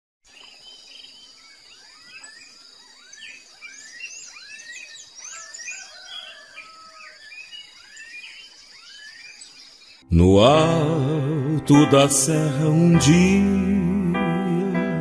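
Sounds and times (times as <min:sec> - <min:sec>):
crickets trilling: 0:00.3 - 0:10.1
birds chirping and whistling: 0:00.4 - 0:10.8.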